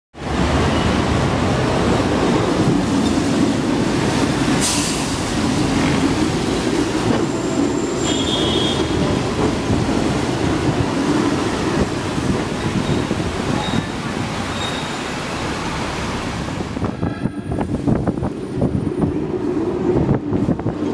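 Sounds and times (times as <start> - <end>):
tram rumbling and rattling: 0.2 - 20.9
short high squeals: 13.6 - 15.1.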